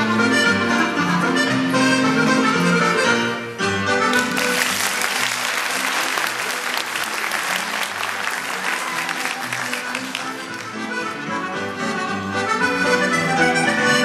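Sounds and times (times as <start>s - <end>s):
folk dance tune: 0.0s - 14.0s
audience applauding: 4.1s - 11.0s.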